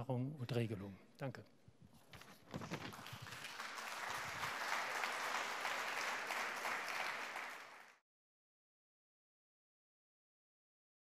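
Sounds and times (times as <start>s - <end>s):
audience applauding: 2.7s - 8.0s.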